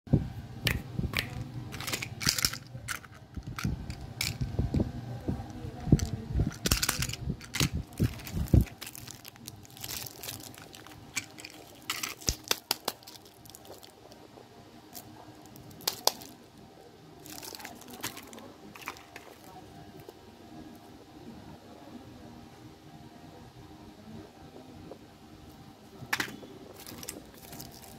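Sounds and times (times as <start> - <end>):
small plastic objects clicking: 0.7 - 4.8, 5.8 - 13.9, 14.9 - 16.4
candy wrappers crinkling: 1.2 - 4.5, 5.5 - 14.2, 14.9 - 16.4, 17.2 - 19.6, 26.2 - 27.9.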